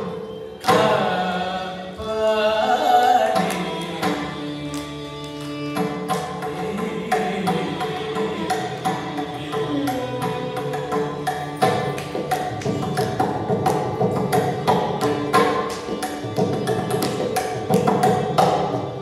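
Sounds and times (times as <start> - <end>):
violin melody: 0.0 - 19.0
person singing: 6.5 - 10.5.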